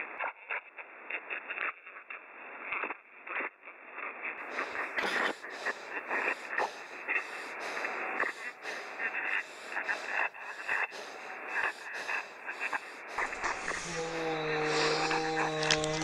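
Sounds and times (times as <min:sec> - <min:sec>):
person breathing heavily: 0:04.4 - 0:16.0.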